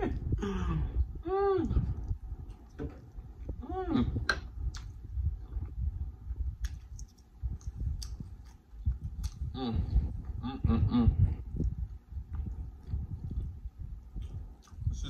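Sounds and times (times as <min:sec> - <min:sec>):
man humming: 0:00.0 - 0:02.0, 0:03.6 - 0:04.3, 0:09.4 - 0:11.4
man chewing food: 0:01.7 - 0:03.6, 0:04.2 - 0:10.4, 0:11.2 - 0:15.0.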